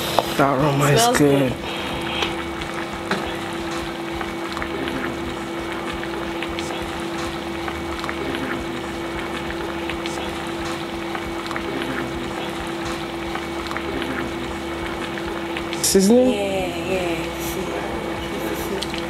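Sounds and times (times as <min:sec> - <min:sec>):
steady hum: 0:00.0 - 0:19.0
food simmering in a pan: 0:01.3 - 0:16.3.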